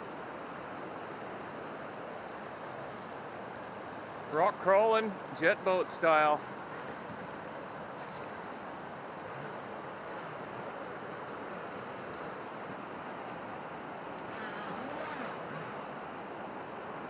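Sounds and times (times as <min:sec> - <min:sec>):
creek water rushing over rocks: 0:00.0 - 0:17.0
toy boat electric motor: 0:14.3 - 0:15.9.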